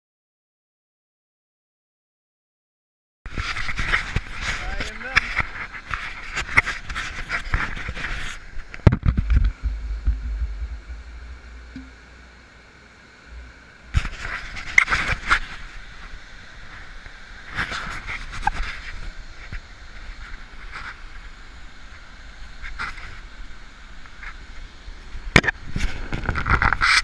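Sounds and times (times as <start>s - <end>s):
wind rumble on microphone: 3.3s - 11.9s, 13.3s - 27.0s
river water rushing over rapids: 9.3s - 27.0s.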